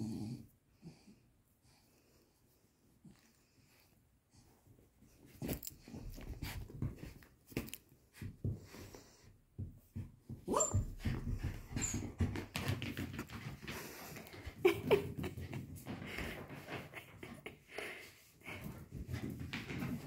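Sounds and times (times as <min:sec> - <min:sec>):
rustling and knocks on a mat: 0:05.3 - 0:14.3.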